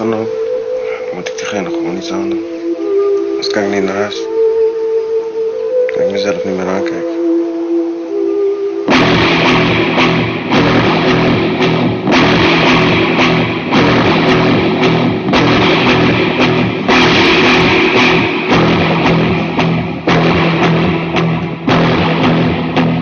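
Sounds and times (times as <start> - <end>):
heavy rock music: 8.9 - 23.0.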